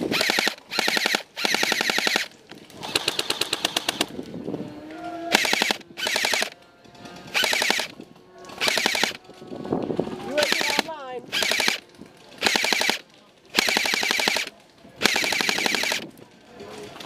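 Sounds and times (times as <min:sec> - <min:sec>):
airsoft rifle firing bursts: 0:00.0 - 0:04.1, 0:05.3 - 0:06.6, 0:07.2 - 0:07.9, 0:08.5 - 0:09.2, 0:10.3 - 0:16.1.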